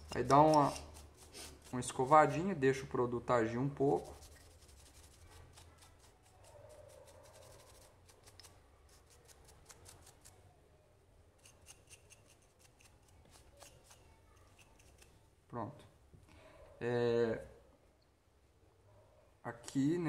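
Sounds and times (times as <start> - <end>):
small brush scrubbing metal: 0.0 - 10.4, 11.4 - 15.2.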